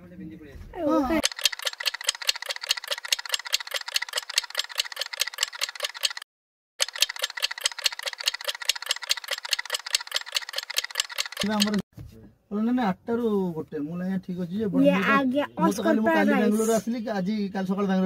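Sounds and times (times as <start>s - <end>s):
rapid even ticking: 1.2s - 11.8s.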